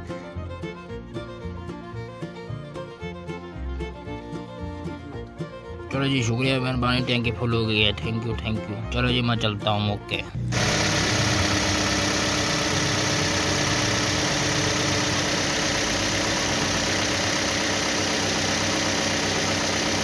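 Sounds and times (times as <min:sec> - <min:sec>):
truck engine idling: 0:10.4 - 0:20.0.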